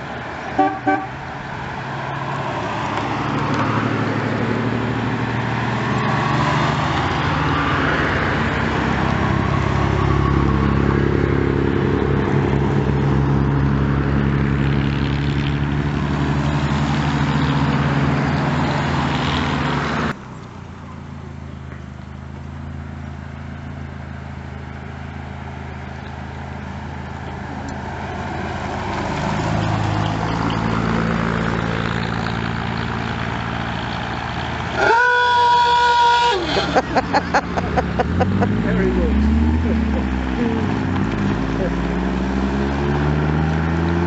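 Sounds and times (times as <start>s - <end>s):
car engines driving past: 0.0s - 44.0s.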